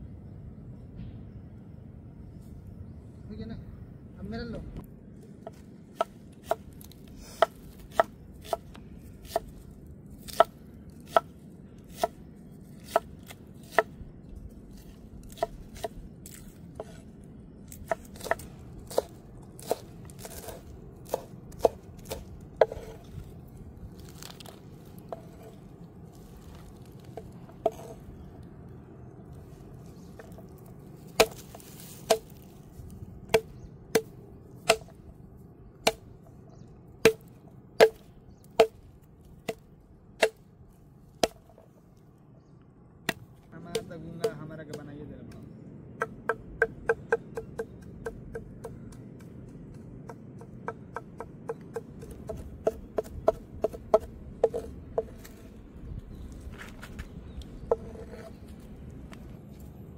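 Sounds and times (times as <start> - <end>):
knife chopping on wooden board: 10.3 - 10.5, 17.8 - 23.0, 27.2 - 28.0, 31.2 - 32.4, 50.1 - 55.2.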